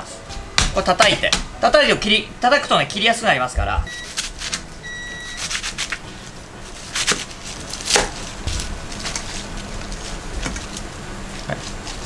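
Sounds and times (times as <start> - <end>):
knife striking plastic cutting board: 7.0 - 9.2.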